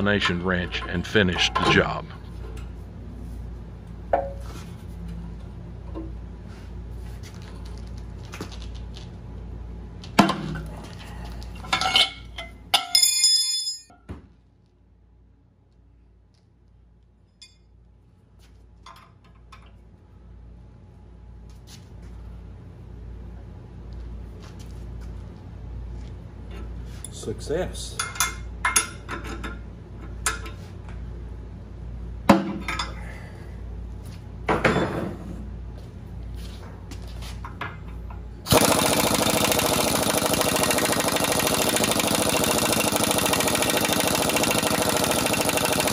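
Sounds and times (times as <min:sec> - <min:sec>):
metal clanks and clinks: 0:00.0 - 0:02.2, 0:11.6 - 0:14.1.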